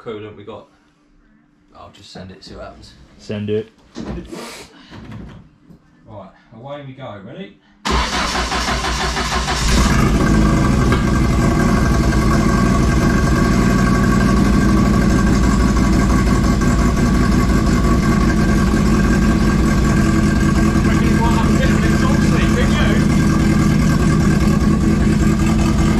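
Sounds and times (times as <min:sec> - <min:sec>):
car engine starting and idling: 0:07.9 - 0:25.9.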